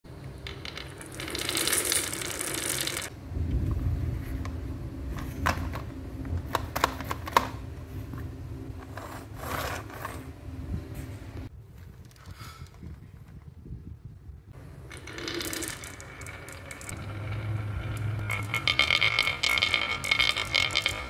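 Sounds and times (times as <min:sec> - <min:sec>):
plastic wheels rolling: 0:00.4 - 0:03.1, 0:14.8 - 0:21.0.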